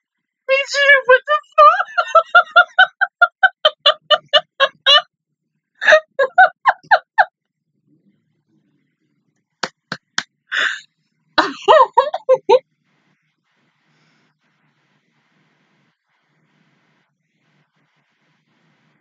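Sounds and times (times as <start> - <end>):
woman laughing hard: 1.2 - 5.0, 5.8 - 7.3, 11.4 - 12.6
hand claps: 9.6 - 10.2.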